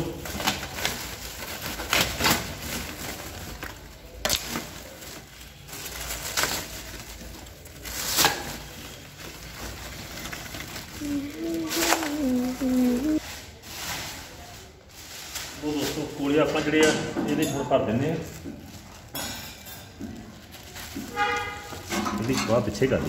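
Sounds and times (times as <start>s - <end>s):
coal lumps shifting: 0.0s - 16.4s
plastic sack rustling and crinkling: 0.0s - 23.0s.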